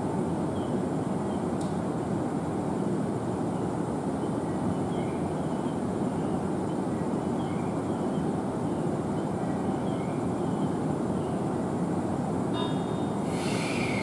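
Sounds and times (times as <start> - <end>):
train rumbling: 11.9 - 14.0
faint high squeaks: 12.6 - 14.0.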